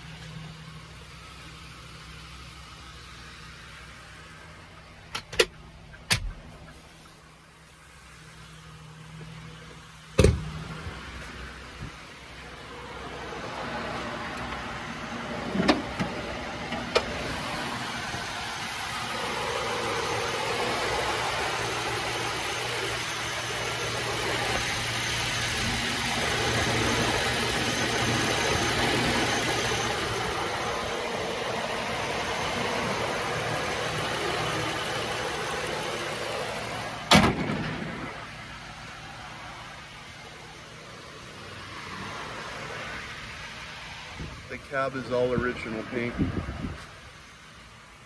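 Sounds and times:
car engine idling: 0.0 - 48.0
car hood slamming shut: 10.2 - 10.5, 37.1 - 37.9.

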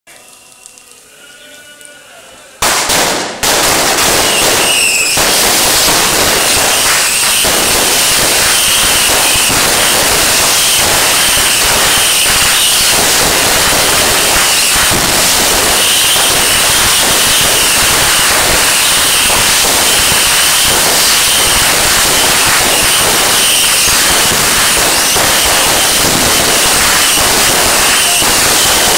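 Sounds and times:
fireworks bangs and crackling: 2.6 - 28.9
wavering high whistle: 4.2 - 5.2.

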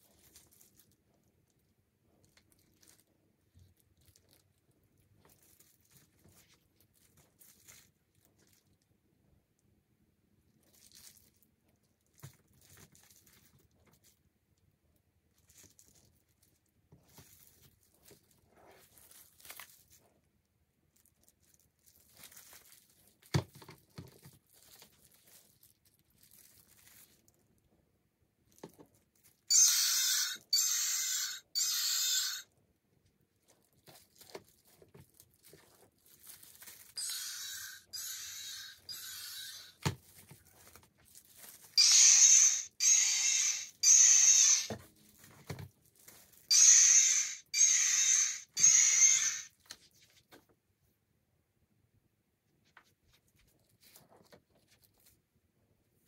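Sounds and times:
rubber toys rubbing: 29.5 - 32.4, 33.5 - 50.1.

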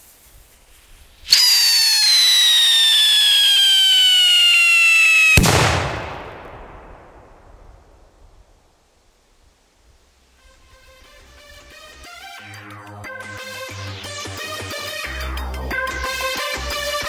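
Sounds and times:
whistle firecracker descending: 1.3 - 7.4
firecracker bang: 1.3 - 8.3.

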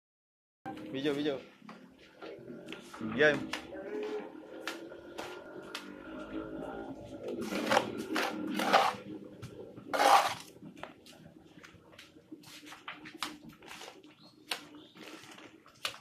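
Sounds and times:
wet mortar scraping and slapping: 7.3 - 11.0.

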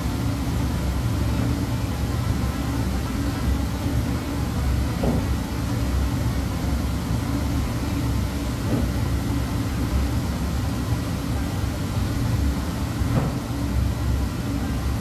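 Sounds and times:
dish machine rumble and hum: 0.0 - 15.0.

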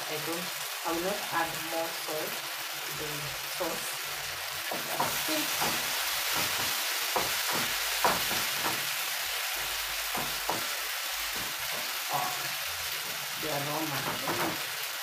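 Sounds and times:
sauce sizzling in a frying pan: 0.0 - 15.0
spoon scraping and knocking pan: 4.7 - 12.4, 14.0 - 14.7.

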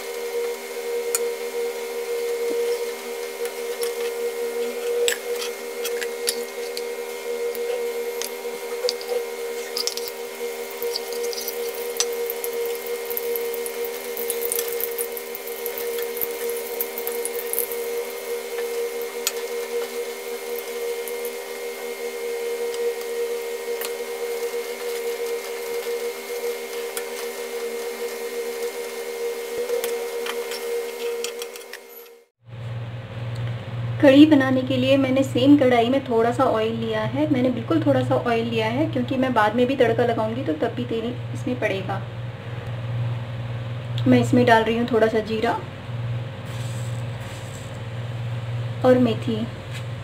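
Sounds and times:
oil sizzling and crackling: 0.0 - 32.0, 46.1 - 48.6
steady machine hum: 0.0 - 50.0
metal spoon scraping pan: 3.7 - 6.9, 7.5 - 13.1.

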